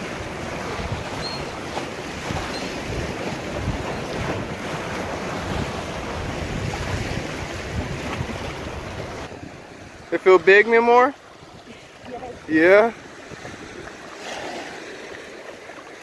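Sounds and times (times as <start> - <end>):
wind buffeting microphone: 0.0 - 10.1, 11.3 - 14.2
waves breaking against rocks: 0.0 - 16.0.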